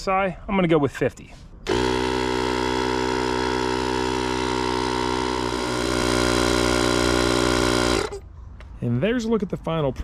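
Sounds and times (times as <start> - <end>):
tyre inflator compressor pumping: 1.6 - 8.2.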